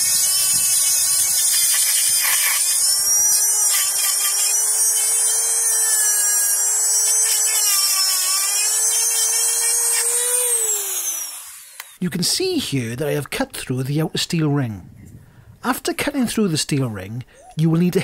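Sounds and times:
rotary tool grinding steel: 0.0s - 12.0s.

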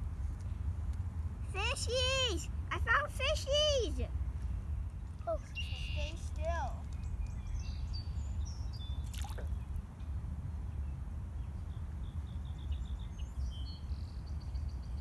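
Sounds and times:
wind rumble on microphone: 0.0s - 2.7s, 4.1s - 15.0s
high chirping bird calls: 5.2s - 9.7s
small plop into water: 9.0s - 9.6s.

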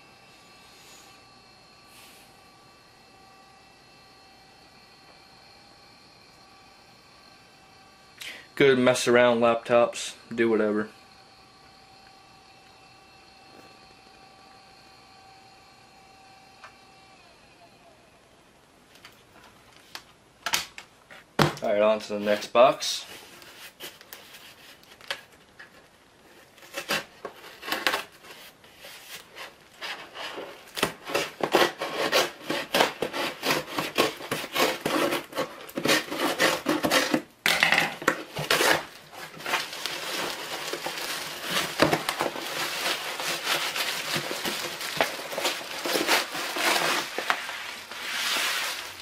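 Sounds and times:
cardboard rustling: 23.0s - 37.3s, 38.0s - 49.0s
scissors slitting packing tape: 30.6s - 37.3s, 38.1s - 47.4s.

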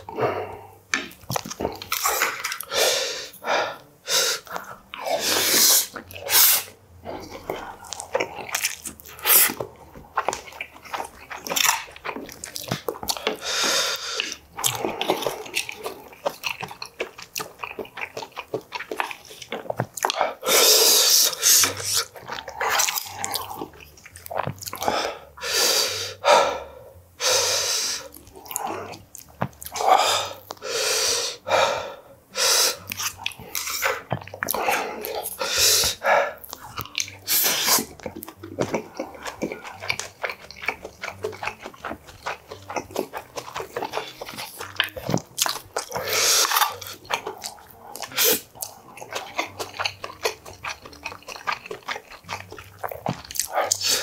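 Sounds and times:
wet chewing and smacking: 0.0s - 25.4s, 27.4s - 30.7s, 32.7s - 54.0s
breaths through nose: 2.0s - 6.7s, 13.2s - 14.9s, 20.1s - 22.1s, 24.8s - 28.8s, 29.8s - 36.4s, 37.2s - 37.9s, 45.9s - 47.0s, 47.8s - 48.5s, 53.5s - 54.0s.

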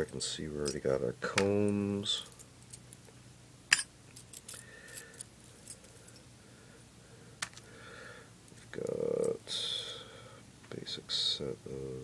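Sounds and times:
metal tools clinking: 0.6s - 0.9s, 3.7s - 6.2s.

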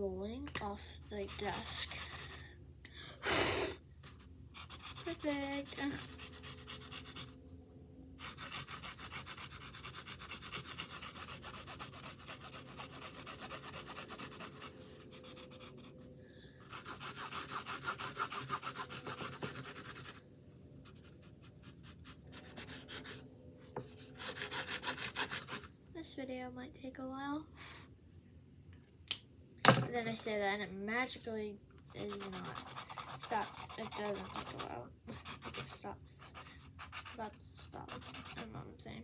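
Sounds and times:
colouring strokes scratching on canvas: 1.0s - 2.4s, 4.0s - 7.4s, 8.2s - 20.2s, 31.9s - 38.6s.

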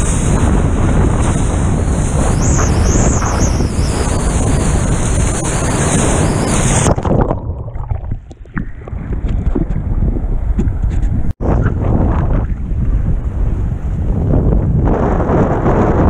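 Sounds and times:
wind buffeting microphone: 0.0s - 16.0s
underwater gurgling: 2.3s - 10.8s.

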